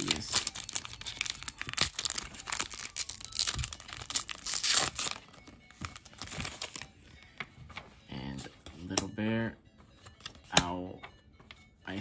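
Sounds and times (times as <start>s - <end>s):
card pack tearing open: 0.0s - 6.9s
foil wrapper crinkling: 0.0s - 6.9s
cards being handled: 0.0s - 9.1s, 9.8s - 11.7s.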